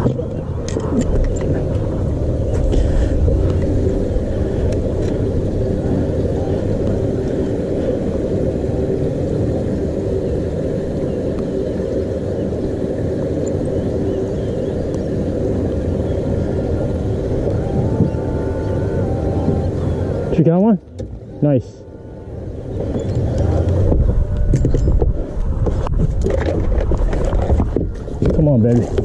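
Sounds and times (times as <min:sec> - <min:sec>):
faint steady hum: 0:00.0 - 0:29.0
wind buffeting microphone: 0:00.0 - 0:29.0.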